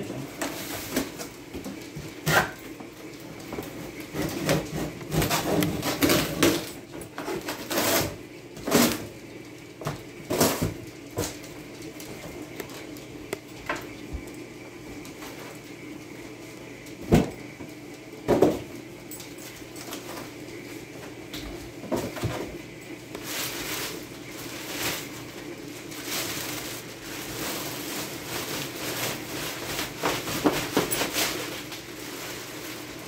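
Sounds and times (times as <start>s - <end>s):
cardboard rustling and scraping: 3.7s - 9.1s.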